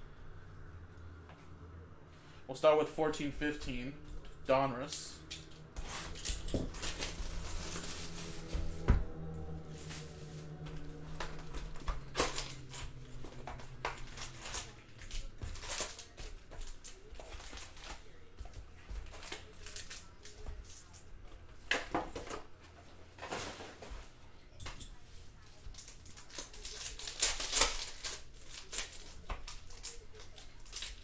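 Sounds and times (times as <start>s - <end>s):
cards rustling: 2.7s - 21.1s, 25.3s - 31.0s
wrappers crinkling and tearing: 4.8s - 8.8s, 9.4s - 18.2s, 19.0s - 21.0s, 25.4s - 31.0s.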